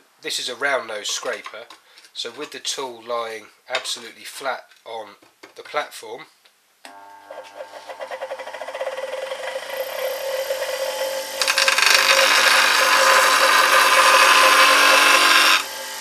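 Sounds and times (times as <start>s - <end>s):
bench grinder running: 6.9s - 16.0s
steel grinding on wheel: 7.7s - 16.0s.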